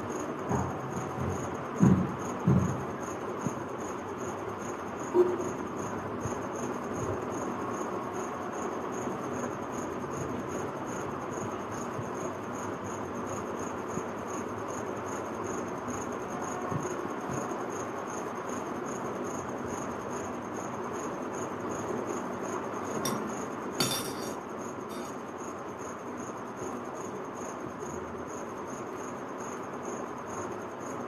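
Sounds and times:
room noise: 0:22.8 - 0:25.2
metal fork clinking on plate: 0:23.1 - 0:25.1.

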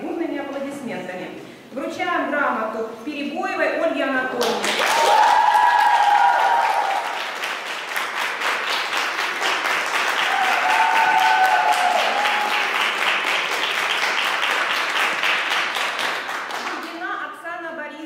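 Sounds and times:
audience applauding: 0:04.6 - 0:16.9.

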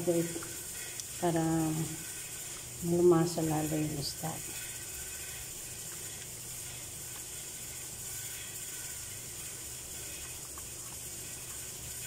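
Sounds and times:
steady low hum: 0:00.0 - 0:12.0
faint ticks: 0:00.3 - 0:01.2.

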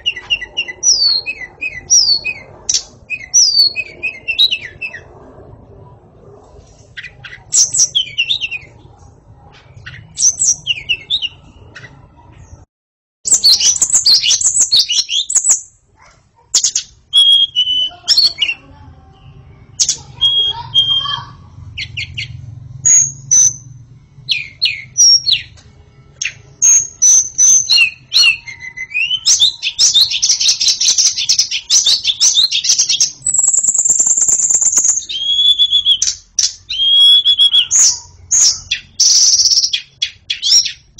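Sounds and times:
songbird whistles and trills: 0:00.0 - 0:05.1, 0:13.3 - 0:15.8, 0:16.5 - 0:18.6, 0:19.8 - 0:23.7, 0:26.2 - 0:40.9.

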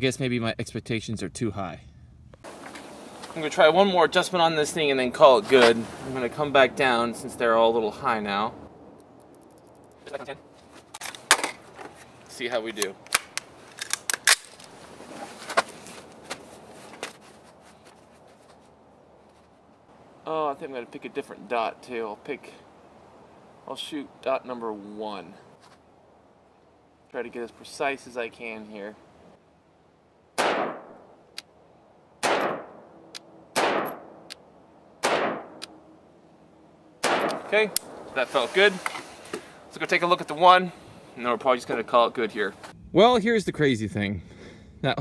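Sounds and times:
sharp metallic gun clicks: 0:09.0 - 0:10.0, 0:12.7 - 0:14.7, 0:37.0 - 0:38.0
pistol shots: 0:30.4 - 0:31.0, 0:32.2 - 0:32.9, 0:33.5 - 0:34.3, 0:35.0 - 0:35.6, 0:37.0 - 0:38.1.

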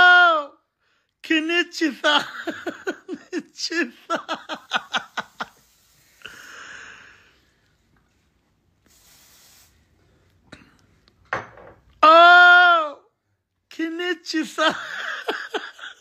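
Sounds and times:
man laughing: 0:01.9 - 0:05.7, 0:14.4 - 0:16.0
heavy breathing: 0:05.3 - 0:07.9.

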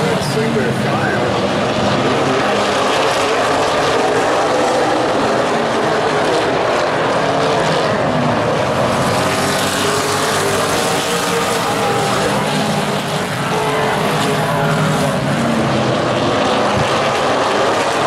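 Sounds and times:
race car engines: 0:00.0 - 0:18.0.

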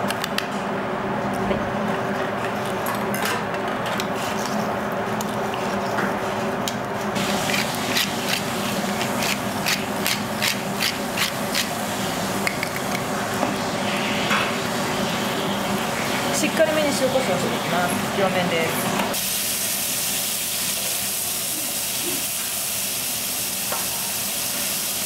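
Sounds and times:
low kitchen hum: 0:00.0 - 0:25.0
pepper mill grinding: 0:07.2 - 0:11.8.

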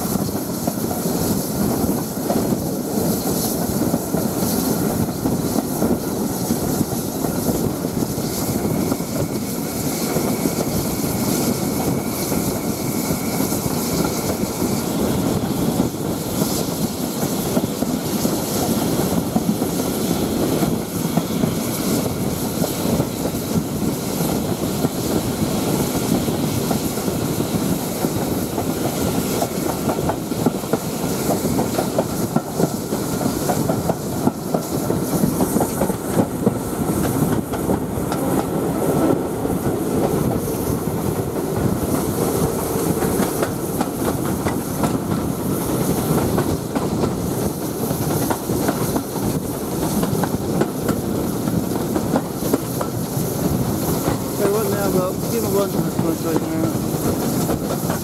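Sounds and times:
train wheels rumbling on track: 0:00.0 - 0:58.0.

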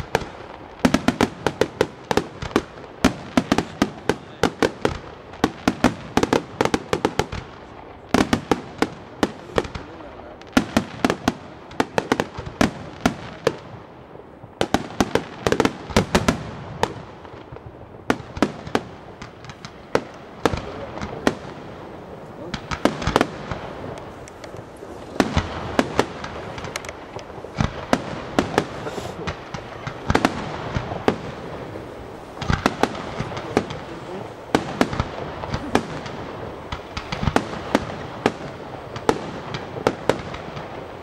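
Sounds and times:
fireworks crackling: 0:00.0 - 0:41.0
firework shells bursting: 0:14.6 - 0:41.0.

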